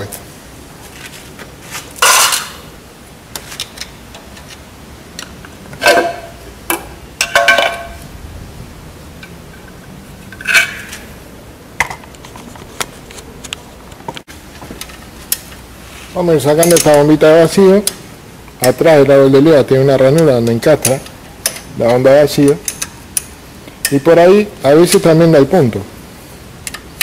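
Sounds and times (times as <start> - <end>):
metal clanks and scrapes: 1.0 - 2.6, 9.6 - 11.1.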